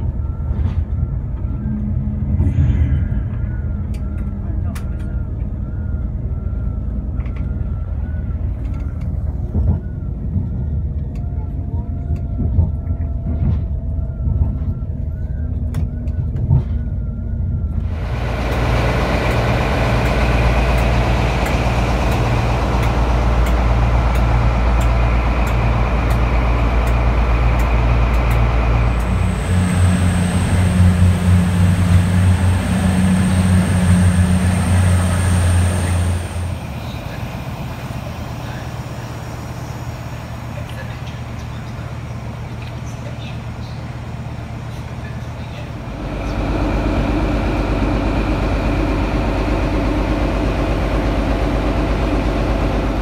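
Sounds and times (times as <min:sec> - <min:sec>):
locomotives idling: 0:00.0 - 0:53.0
low hum with high whine: 0:00.0 - 0:53.0
train interior rumble: 0:00.0 - 0:53.0.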